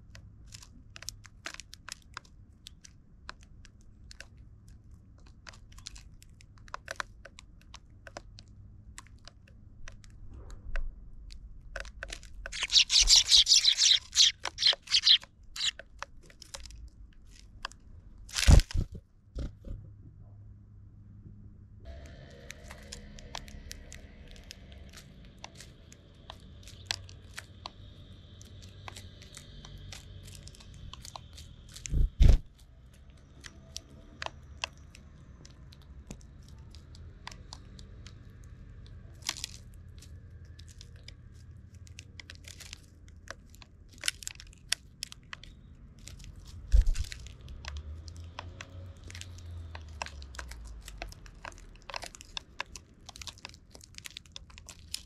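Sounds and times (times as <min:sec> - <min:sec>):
birds pecking seed: 0:00.0 - 0:19.5, 0:21.9 - 0:55.0.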